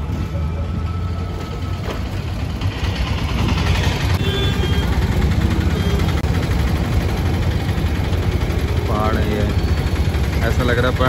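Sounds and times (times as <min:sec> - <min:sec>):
traffic engines rumbling: 0:00.0 - 0:11.0
distant horn: 0:03.9 - 0:06.2.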